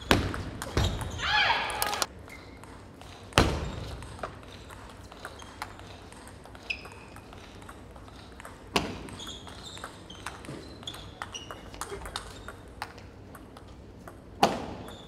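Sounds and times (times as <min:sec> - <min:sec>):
sneaker squeaks on hardwood: 0:08.8 - 0:11.7, 0:14.7 - 0:15.0.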